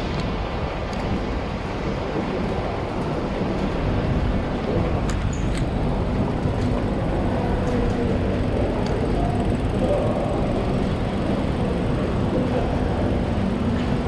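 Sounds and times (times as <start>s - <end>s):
faint motor whine: 0.0s - 14.0s
traffic on wet street: 0.0s - 14.0s.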